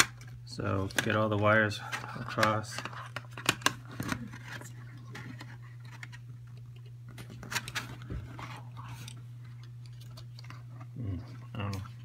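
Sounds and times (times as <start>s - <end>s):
plastic clicks and scratches: 1.9s - 10.9s.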